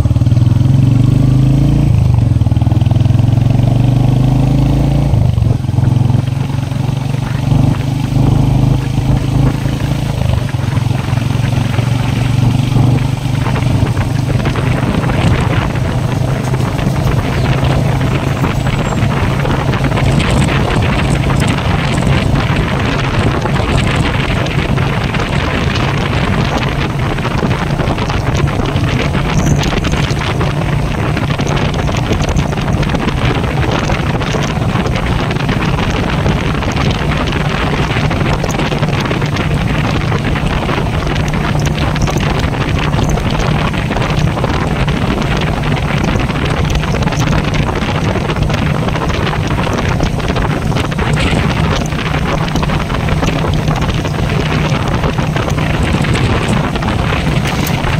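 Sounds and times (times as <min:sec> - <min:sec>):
motorcycle engine running: 0:00.0 - 0:57.9
wind buffeting microphone: 0:00.0 - 0:57.9.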